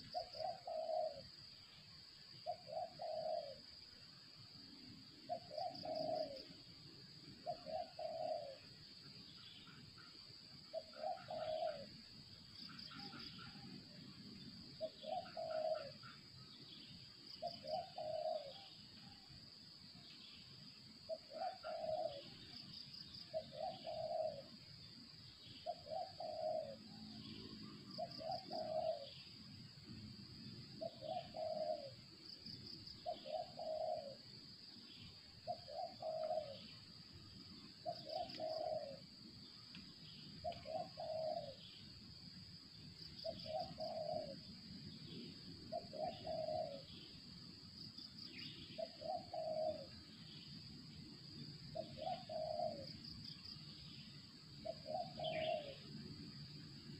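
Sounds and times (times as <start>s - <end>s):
dove cooing: 0.0s - 1.3s, 2.4s - 3.7s, 5.2s - 6.6s, 7.4s - 8.8s, 10.7s - 12.0s, 14.8s - 16.2s, 17.4s - 19.2s, 21.1s - 22.6s, 23.3s - 24.6s, 25.6s - 27.2s, 28.0s - 29.2s, 30.8s - 32.0s, 32.9s - 34.3s, 35.4s - 36.7s, 37.8s - 39.2s, 40.4s - 41.7s, 43.2s - 44.5s, 45.6s - 47.1s, 48.4s - 50.1s, 51.7s - 53.0s, 54.6s - 56.0s.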